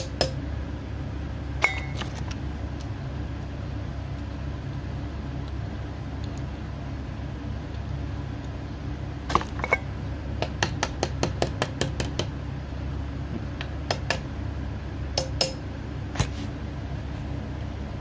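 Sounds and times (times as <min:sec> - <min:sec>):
small hammer tapping metal: 0:00.0 - 0:00.4, 0:10.4 - 0:12.3, 0:15.2 - 0:15.6
steady low hum: 0:00.0 - 0:18.0.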